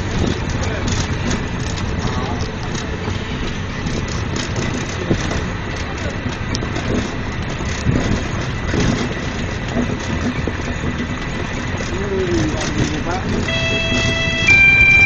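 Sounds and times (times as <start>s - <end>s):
vehicle running: 0.0s - 15.0s
faint voices: 1.9s - 3.2s.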